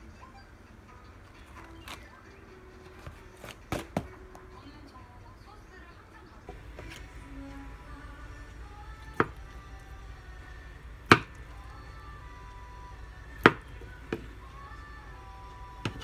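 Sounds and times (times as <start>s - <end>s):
quiet background music: 0.0s - 16.0s
knife chopping on plastic board: 3.7s - 4.1s.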